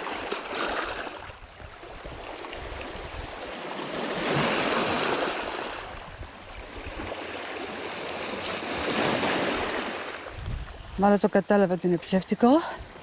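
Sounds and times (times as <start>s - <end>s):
waves washing over pebbles: 2.1s - 6.0s.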